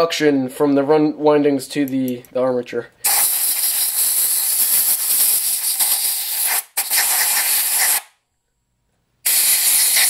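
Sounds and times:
compressed air hissing from nozzle: 3.0 - 8.1, 9.2 - 10.0.

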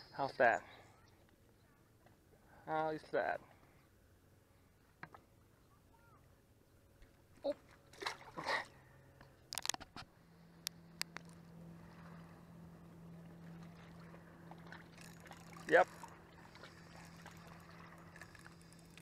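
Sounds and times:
faint steady low hum: 0.0 - 19.0
sharp clicks: 10.6 - 11.4.

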